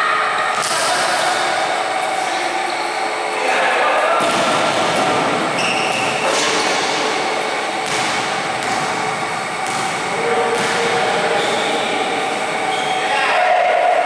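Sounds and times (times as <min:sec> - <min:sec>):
echoing gym noise: 0:00.0 - 0:14.0
faint voices: 0:09.0 - 0:14.0.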